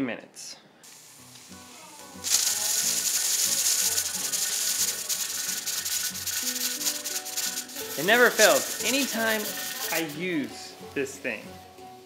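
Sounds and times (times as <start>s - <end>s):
steam hissing and sputtering: 0.8s - 10.4s
low background music: 0.8s - 12.0s.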